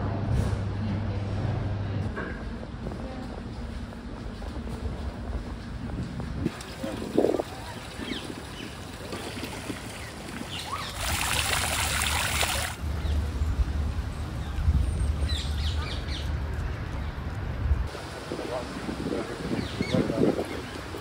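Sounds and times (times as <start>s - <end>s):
wind rumble on microphone: 0.0s - 21.0s
fountain jet splashing into pond: 6.5s - 12.8s
birds chirping: 6.8s - 17.4s, 19.2s - 21.0s.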